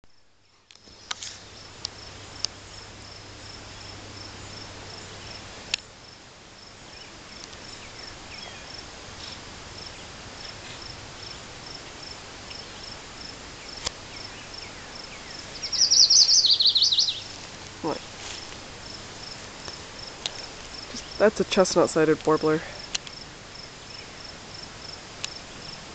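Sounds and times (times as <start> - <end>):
pulsing insect chirp: 0.8 - 25.9
warbler singing: 6.8 - 10.6, 13.6 - 18.0
faint clicks: 22.8 - 23.2.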